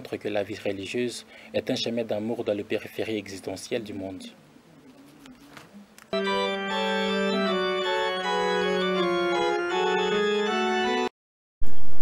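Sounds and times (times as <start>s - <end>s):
organ music: 6.1s - 11.1s.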